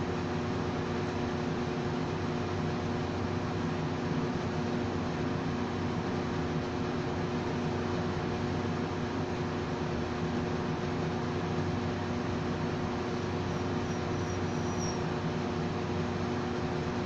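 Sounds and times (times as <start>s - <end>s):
low mechanical hum with hiss: 0.0s - 17.0s
faint high chirps: 13.5s - 15.1s.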